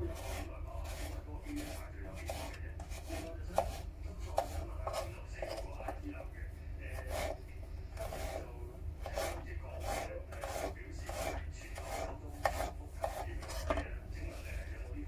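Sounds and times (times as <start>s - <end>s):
knife slicing cucumber on board: 0.1s - 5.7s, 6.9s - 7.4s, 9.0s - 13.8s.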